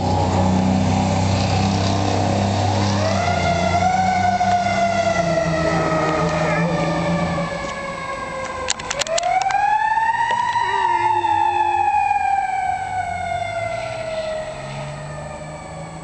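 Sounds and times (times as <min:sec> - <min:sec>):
fire engine siren wailing: 0:00.0 - 0:16.0
sharp clicks: 0:08.4 - 0:09.6.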